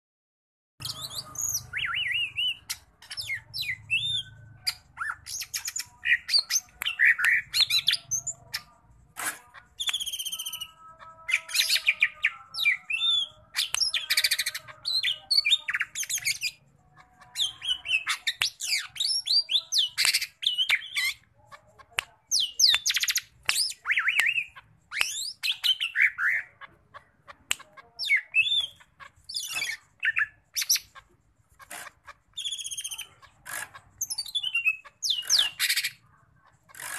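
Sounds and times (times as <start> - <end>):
bird singing whistles and trills: 0.8 - 8.3, 9.8 - 10.8, 17.4 - 21.2.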